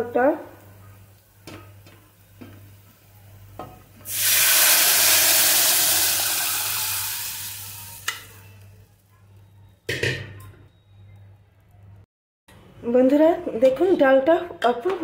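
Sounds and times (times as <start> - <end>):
lentils sizzling in hot oil: 0.1 - 9.0.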